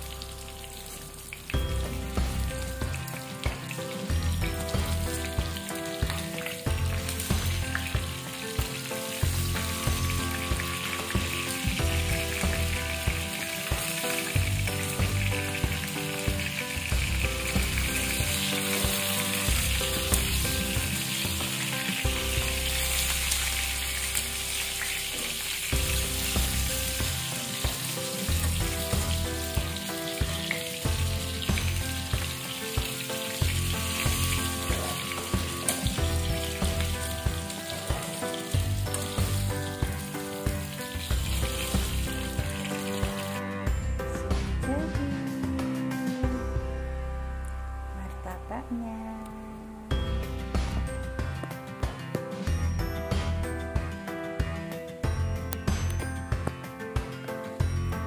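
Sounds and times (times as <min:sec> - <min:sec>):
food sizzling in hot oil: 0:00.0 - 0:46.2.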